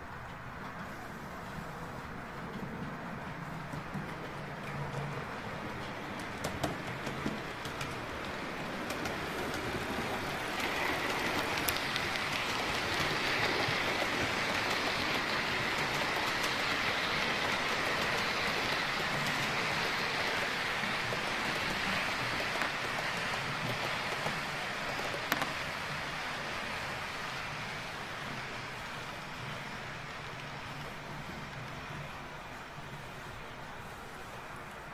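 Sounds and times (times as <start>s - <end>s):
model train wheels rattling: 2.4s - 27.7s
faint clicks: 10.6s - 13.0s.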